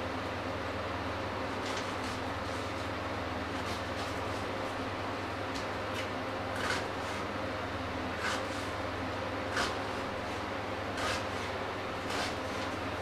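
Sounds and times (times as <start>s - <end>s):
steady low hum: 0.0s - 13.0s
knife chopping onion on board: 9.5s - 9.9s, 10.9s - 12.8s.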